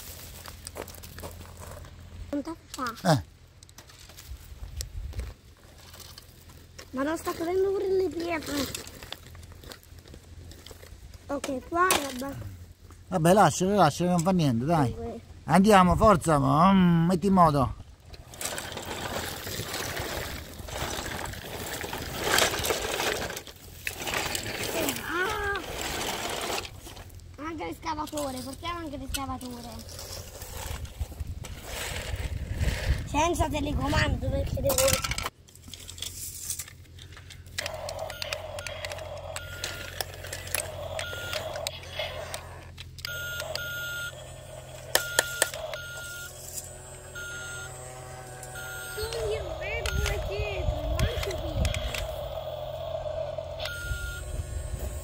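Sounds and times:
stones clicking under tracks: 0.0 - 2.0
toy truck wheels on gravel: 0.0 - 55.0
toy motor hum: 18.2 - 27.1, 37.2 - 55.0
short electronic beeps: 38.0 - 40.0, 41.0 - 41.6, 43.0 - 44.3, 44.9 - 46.4, 47.1 - 47.8, 48.5 - 50.4, 53.6 - 54.4.

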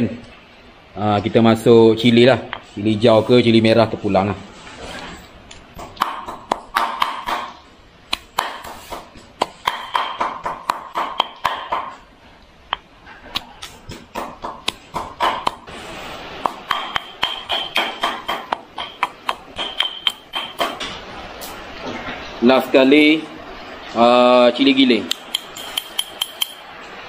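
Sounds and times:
pestle knocking in mortar: 5.8 - 12.0, 13.4 - 15.7, 16.4 - 20.8.

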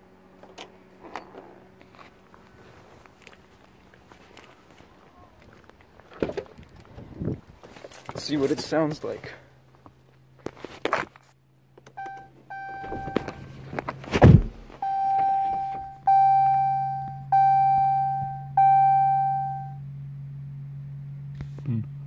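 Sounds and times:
dashboard warning chime: 11.9 - 13.6, 14.8 - 19.8
heavy thump: 14.0 - 14.8.

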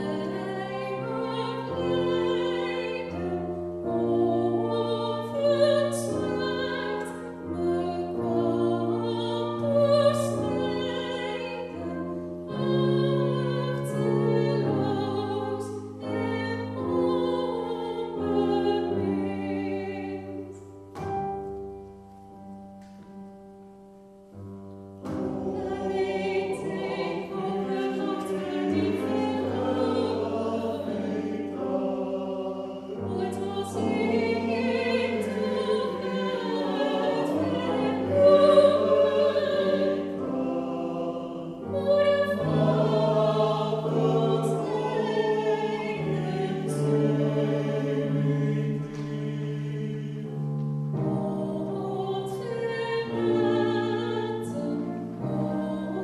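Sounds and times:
woman singing into a microphone: 0.0 - 20.5, 41.7 - 43.0, 51.2 - 56.0
choir and instrumental chords: 0.0 - 56.0.

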